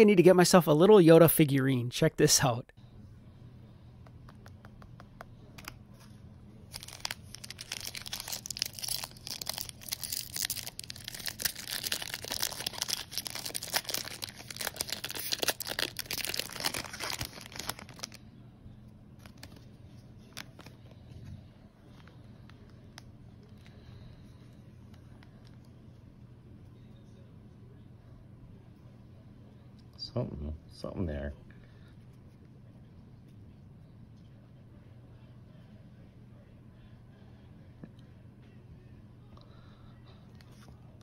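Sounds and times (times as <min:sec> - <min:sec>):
foil pack tearing and crinkling: 0:06.7 - 0:18.2.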